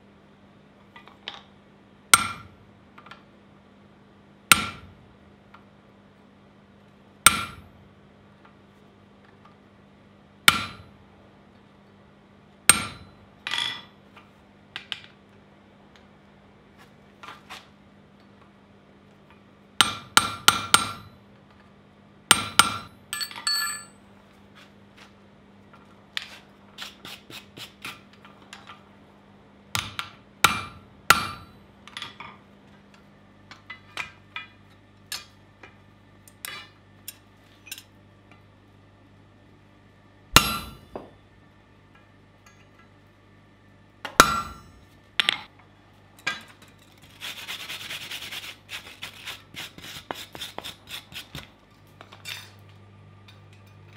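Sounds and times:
faint steady hum: 0.0s - 53.9s
hammer clanging on chisel: 40.4s - 41.1s, 44.1s - 44.8s.

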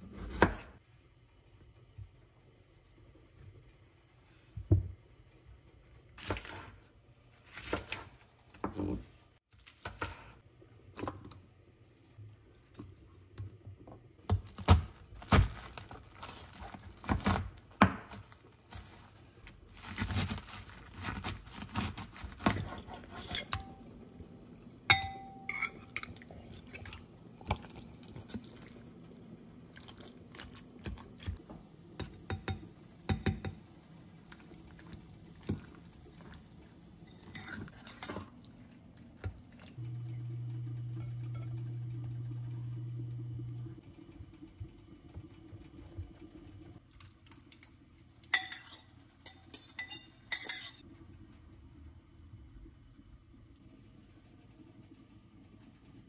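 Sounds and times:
fork scraping in ceramic bowl: 22.5s - 23.8s, 25.5s - 26.2s, 37.1s - 38.3s.

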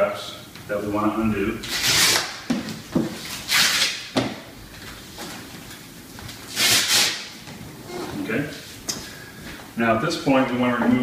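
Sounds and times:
velcro straps ripping open: 1.7s - 2.4s, 3.4s - 4.1s, 6.5s - 7.3s.

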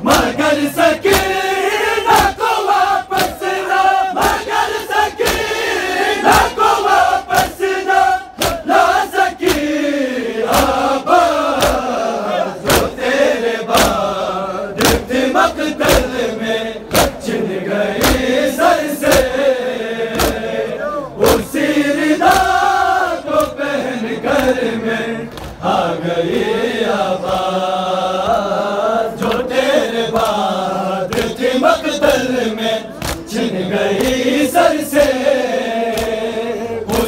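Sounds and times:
crowd of men chanting: 0.0s - 37.0s
hands slapping chests: 1.0s - 1.5s, 2.1s - 4.5s, 5.1s - 5.6s, 8.3s - 9.8s, 10.4s - 10.9s, 11.5s - 11.9s, 12.6s - 13.0s, 13.7s - 14.0s, 14.8s - 15.1s, 16.9s - 17.2s, 18.0s - 18.3s, 20.1s - 20.4s, 30.1s - 30.5s, 31.1s - 31.4s, 33.0s - 33.3s, 35.9s - 36.2s.

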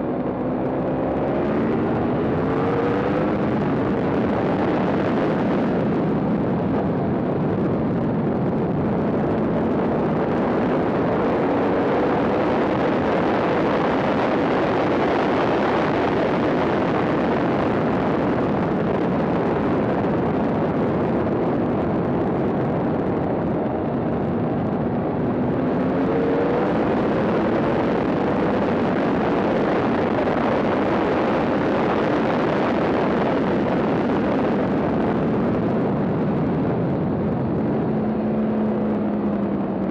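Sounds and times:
motorcycle engine racing: 0.0s - 39.9s
wind rush on microphone: 0.0s - 39.9s.

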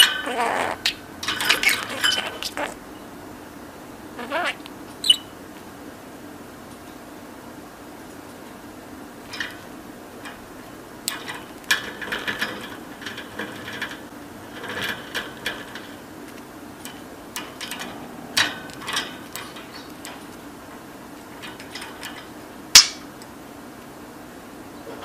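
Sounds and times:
budgerigar chatter: 1.6s - 2.8s, 4.2s - 5.3s.

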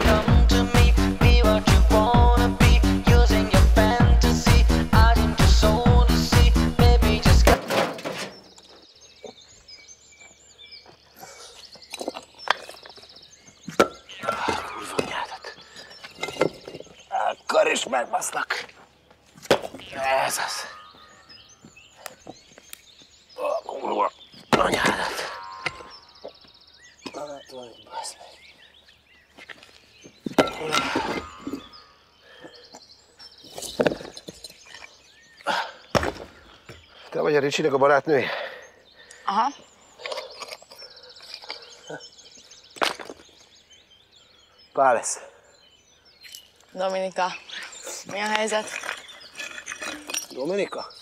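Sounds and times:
birds chirping and trilling: 0.0s - 51.0s
stones knocking against rubble: 16.0s - 17.0s, 30.2s - 31.6s, 33.5s - 34.9s, 35.9s - 36.3s, 42.8s - 43.4s, 48.2s - 50.4s.

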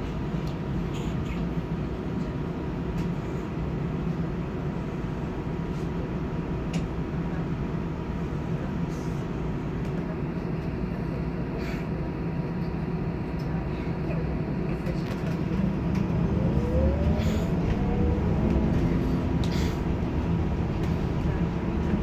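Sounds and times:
low mechanical hum: 0.0s - 22.0s.

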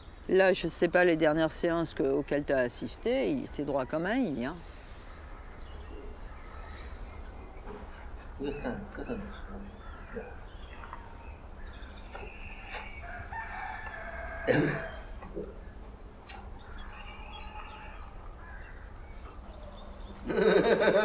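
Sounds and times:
rooster crowing: 13.0s - 15.2s.

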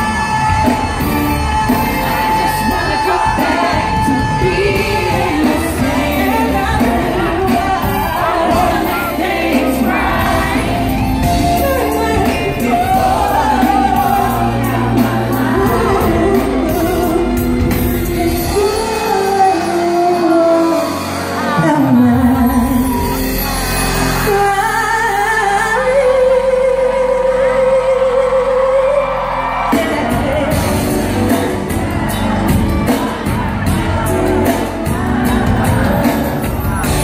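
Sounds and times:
band accompaniment: 0.0s - 37.0s
woman singing a slow ballad: 11.6s - 23.1s, 24.2s - 31.0s.

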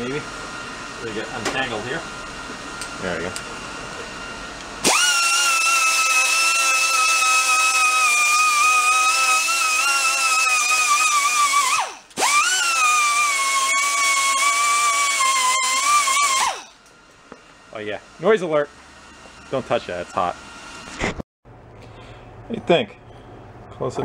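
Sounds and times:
die grinder whining: 4.6s - 16.9s.

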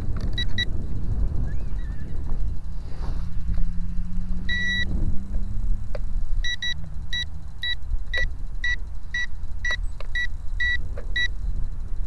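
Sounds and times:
wind rumble on microphone: 0.0s - 12.0s
short high electronic beeps: 4.5s - 4.9s.

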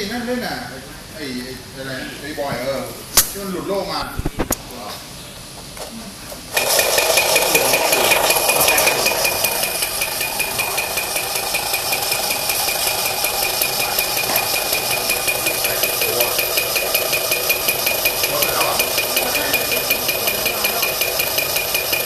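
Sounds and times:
toy motor whining and rattling: 6.5s - 22.0s.

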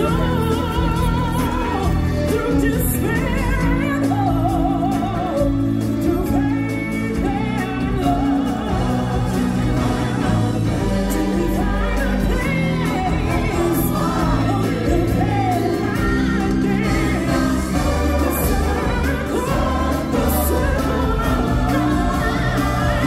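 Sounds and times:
held bass notes: 0.0s - 23.0s
choir singing: 7.2s - 23.0s.

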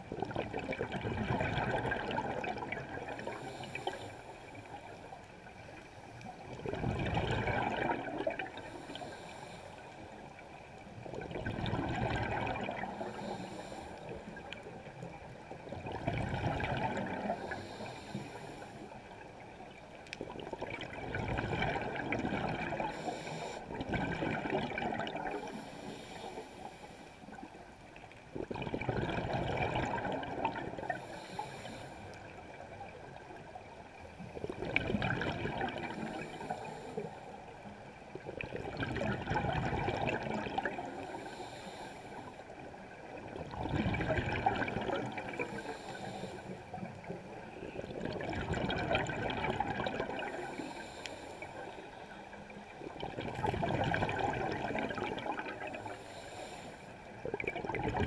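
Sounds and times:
diver inhaling through regulator: 3.1s - 4.5s, 8.5s - 10.0s, 12.9s - 14.4s, 17.2s - 18.9s, 22.6s - 23.8s, 25.3s - 27.4s, 30.8s - 32.3s, 35.7s - 37.4s, 40.8s - 42.4s, 45.2s - 46.9s, 50.2s - 52.2s, 55.7s - 57.1s.

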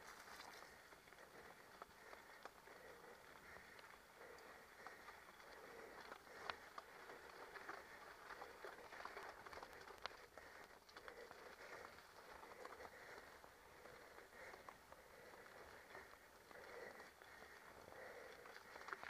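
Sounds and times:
clicks and rattles of stones: 0.0s - 19.0s.

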